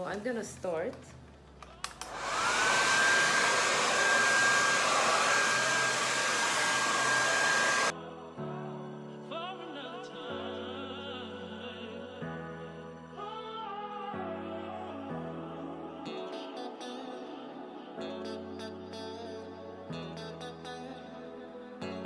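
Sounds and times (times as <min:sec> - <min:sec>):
soft background music: 0:00.0 - 0:01.9, 0:07.9 - 0:22.0
hair dryer motor whining: 0:01.8 - 0:07.9.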